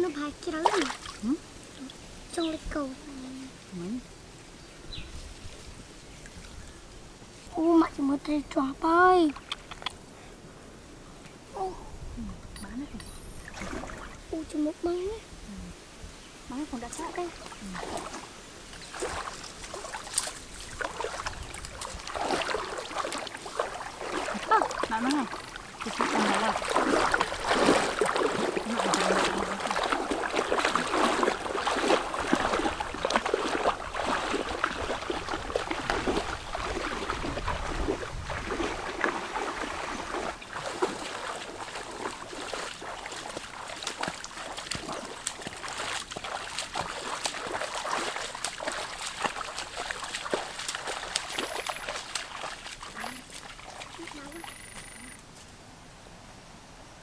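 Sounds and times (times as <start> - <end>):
wading through water splashing: 0.0 - 1.9, 13.0 - 14.7, 16.5 - 55.2.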